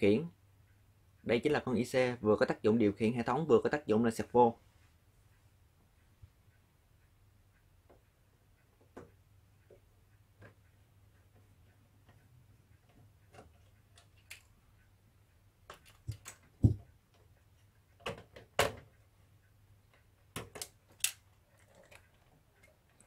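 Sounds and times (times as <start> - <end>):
handling clicks and knocks: 15.7 - 16.9.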